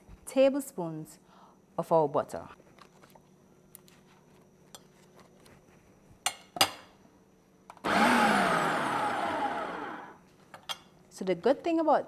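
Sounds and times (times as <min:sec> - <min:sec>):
food processor running: 0:07.8 - 0:10.2.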